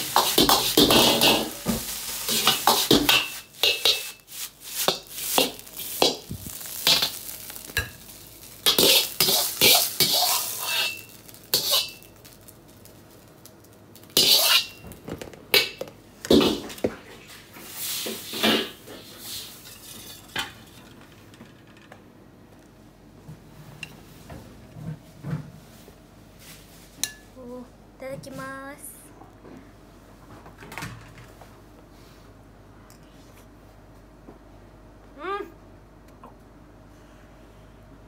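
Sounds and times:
rice sizzling: 0.0s - 21.3s.

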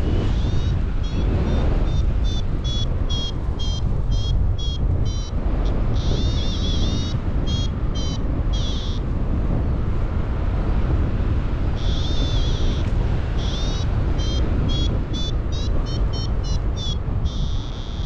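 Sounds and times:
wind rushing over microphone: 0.0s - 18.0s
variometer beeping: 0.2s - 9.0s, 13.4s - 18.0s.

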